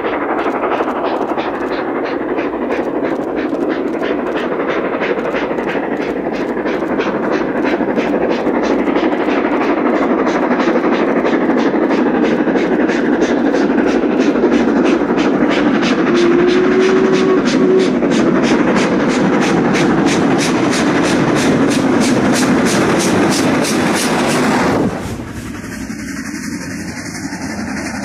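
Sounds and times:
steady rushing noise: 0.0s - 28.0s
steam train chugging: 0.0s - 28.0s.

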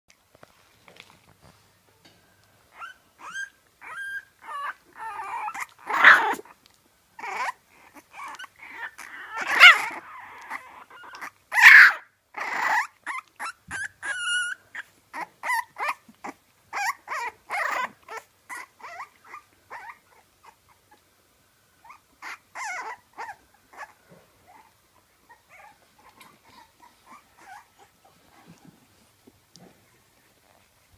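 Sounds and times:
puppy whimpering: 2.7s - 6.6s, 7.2s - 21.0s, 21.8s - 29.0s
puppy yelping: 2.7s - 6.6s, 7.2s - 20.7s, 21.8s - 28.6s.

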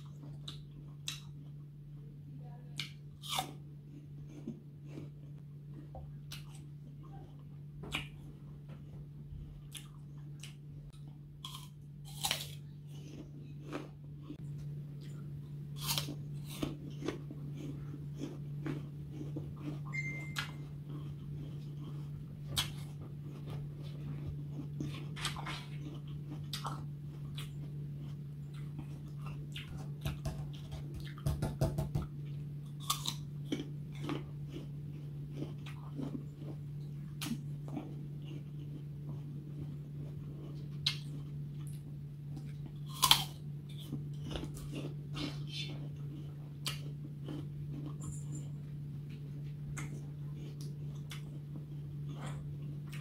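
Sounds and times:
low steady hum: 0.0s - 53.0s
apple crunching bites: 2.8s - 5.4s, 9.7s - 14.4s, 15.1s - 39.9s, 40.5s - 48.5s.

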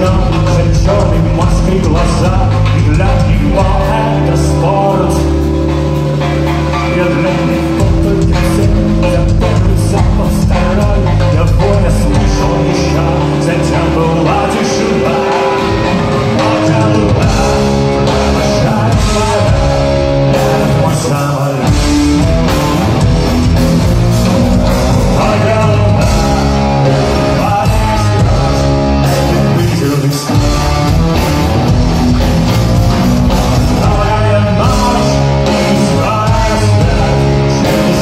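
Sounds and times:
live rock band playing: 0.0s - 38.0s.

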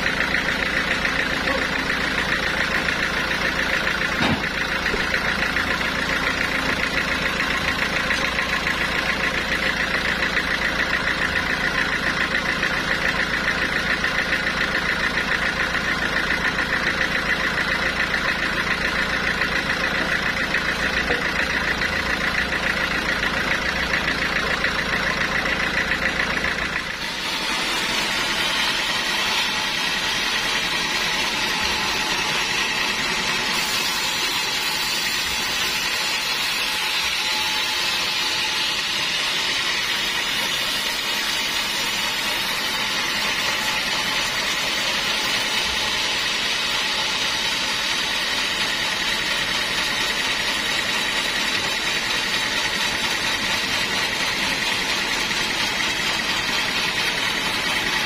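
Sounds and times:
band saw cutting a log: 0.0s - 58.0s
band sawmill droning: 0.0s - 58.0s.

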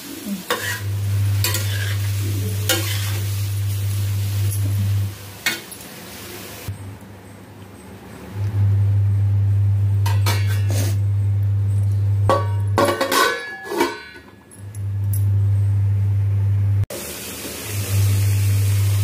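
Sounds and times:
low hum: 0.8s - 5.2s, 8.4s - 12.8s, 14.6s - 16.8s
metal lid clinking on pot: 12.3s - 14.4s.

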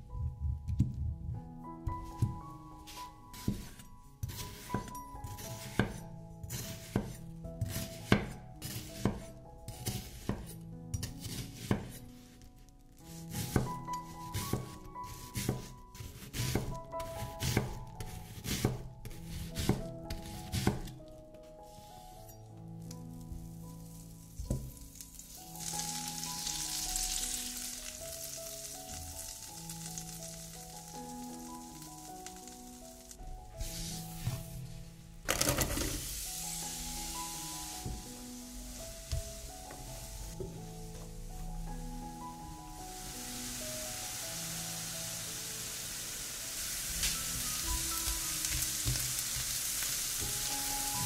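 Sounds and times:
soft background music: 0.0s - 51.0s
onion sizzling in frying pan: 2.0s - 12.0s, 13.1s - 20.9s, 22.8s - 51.0s
knife slicing onion on board: 5.6s - 12.0s, 13.2s - 16.7s, 17.4s - 17.8s, 18.4s - 20.9s.

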